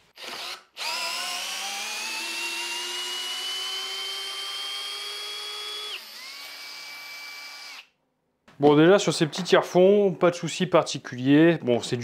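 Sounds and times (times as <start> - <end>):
cordless drill whine: 0.2 - 7.9.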